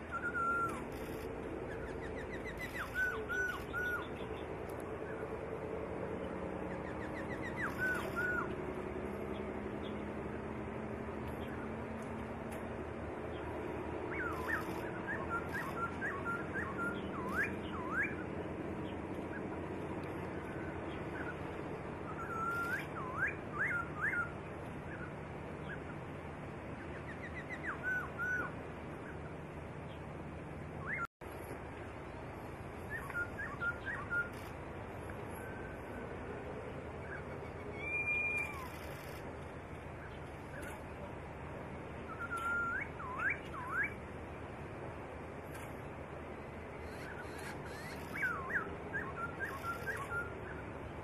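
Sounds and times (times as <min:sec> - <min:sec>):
bird whistling song: 0:00.0 - 0:05.2, 0:06.7 - 0:08.6, 0:14.1 - 0:25.9, 0:26.9 - 0:29.2, 0:30.8 - 0:31.1, 0:32.8 - 0:34.6, 0:37.0 - 0:39.2, 0:42.0 - 0:44.0, 0:46.8 - 0:50.7
steady background noise: 0:00.0 - 0:51.0.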